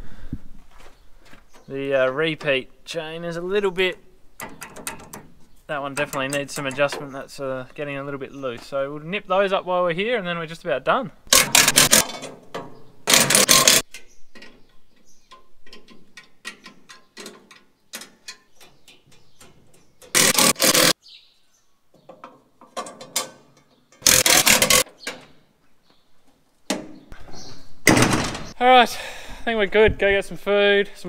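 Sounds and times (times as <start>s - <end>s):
ratchet spanner clicking: 11.4s - 12.0s, 13.1s - 13.8s, 20.1s - 21.0s, 24.0s - 24.9s.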